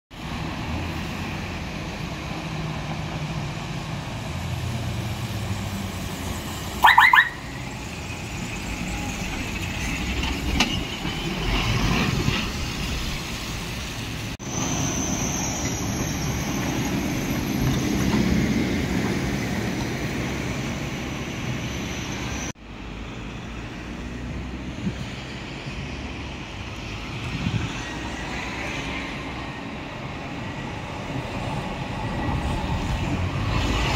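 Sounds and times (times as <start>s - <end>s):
traffic driving past: 0.2s - 33.9s
truck horn blast: 6.8s - 7.6s.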